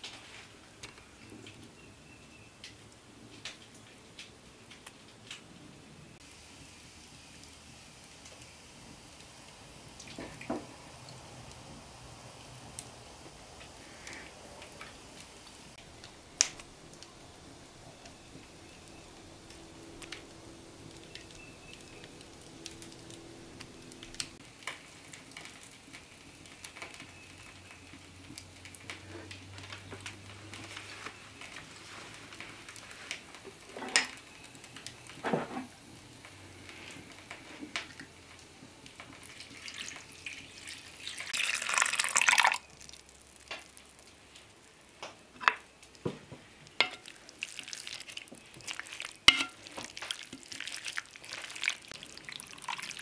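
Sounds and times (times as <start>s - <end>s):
broth pouring into bowl: 6.3s - 24.4s, 39.3s - 44.6s, 46.7s - 53.0s.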